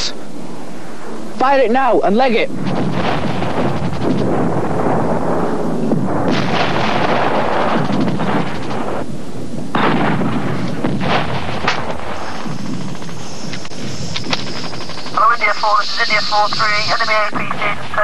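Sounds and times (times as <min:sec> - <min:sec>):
heavy battle rumble: 0:02.5 - 0:15.4
gunshot cracks: 0:06.2 - 0:08.9.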